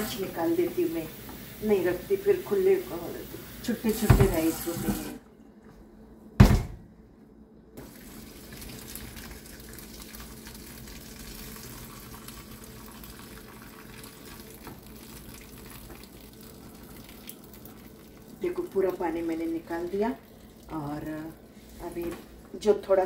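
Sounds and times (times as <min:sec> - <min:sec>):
water poured into metal sink: 0:03.9 - 0:05.2
loud knock: 0:06.4 - 0:06.9.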